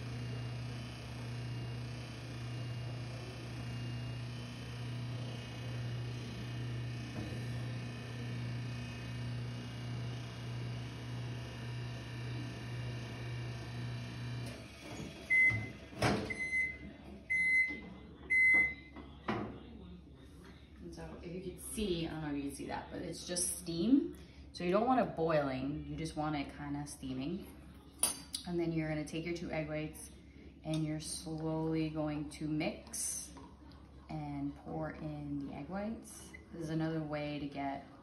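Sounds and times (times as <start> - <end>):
microwave beeping: 0.0 - 18.9
microwave oven humming: 0.0 - 18.9.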